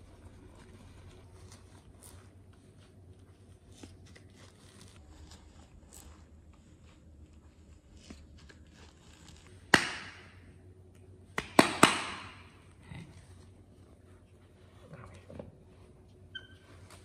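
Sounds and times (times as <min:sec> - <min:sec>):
hands clapping: 0:09.7 - 0:10.4, 0:11.3 - 0:12.5.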